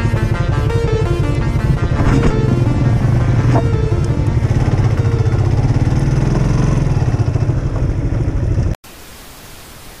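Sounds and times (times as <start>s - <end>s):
motorcycle engine droning: 0.0s - 8.8s
static hiss: 8.9s - 10.0s.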